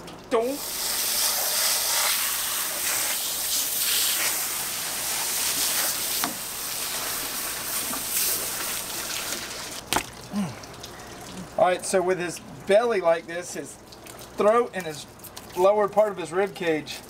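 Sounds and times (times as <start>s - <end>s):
hose spray hissing: 0.5s - 9.8s.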